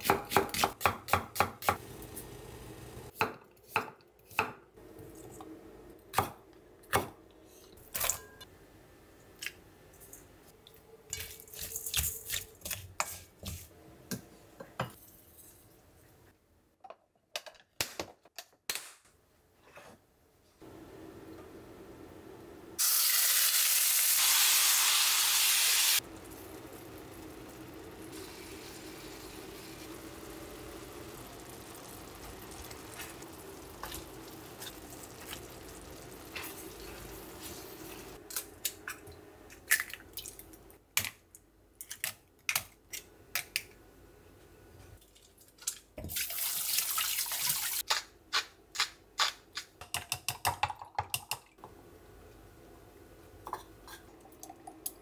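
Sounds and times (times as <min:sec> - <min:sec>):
chicken frying in oil: 0:22.8 - 0:38.2.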